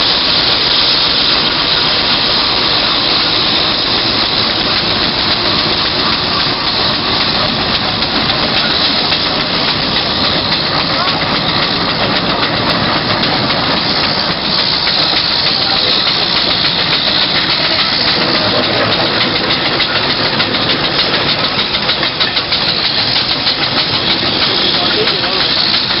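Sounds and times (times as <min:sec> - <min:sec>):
steam engines hissing and chuffing: 0:00.0 - 0:26.0.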